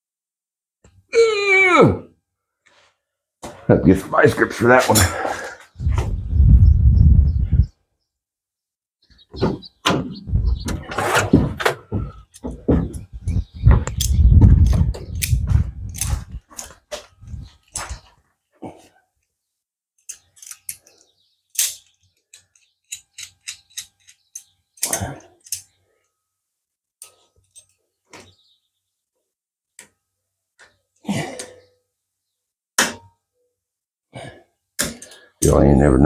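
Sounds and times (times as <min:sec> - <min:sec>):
metal tool clinks and clicks: 0:20.0 - 0:21.0, 0:21.6 - 0:25.7.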